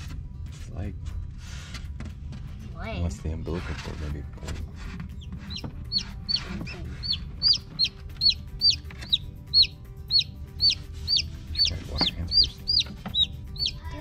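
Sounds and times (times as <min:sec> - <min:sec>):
chick peeping: 0:05.2 - 0:13.8.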